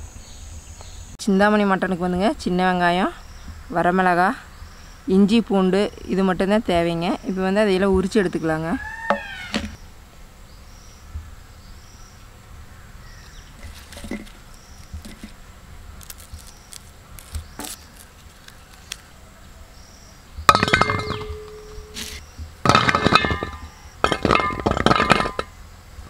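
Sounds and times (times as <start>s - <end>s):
insect chirping: 1.8s - 26.0s
papery skins crackling: 13.6s - 19.2s
shallots clattering into metal bowl: 20.5s - 25.5s.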